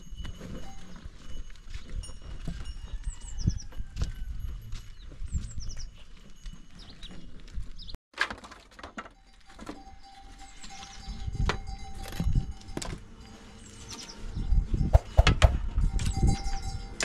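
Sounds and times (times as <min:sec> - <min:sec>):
small birds chirping: 0:04.8 - 0:08.0, 0:09.9 - 0:11.8, 0:13.2 - 0:15.2.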